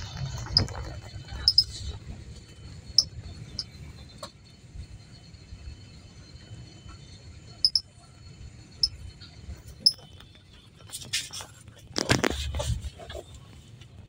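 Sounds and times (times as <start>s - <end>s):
bus engine rumble: 0.0s - 14.0s
high-pitched chirps: 1.4s - 1.7s, 7.6s - 7.9s.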